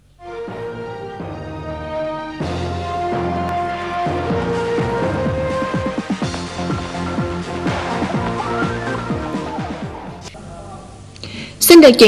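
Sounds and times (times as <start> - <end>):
electronic music with pulsing beat: 4.8 - 10.3.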